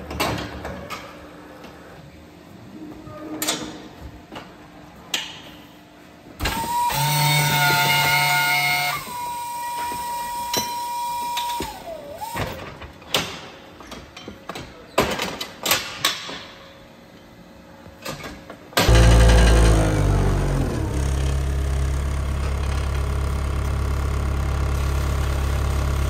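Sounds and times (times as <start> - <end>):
electric motor whine: 6.5 - 11.8, 18.8 - 26.0.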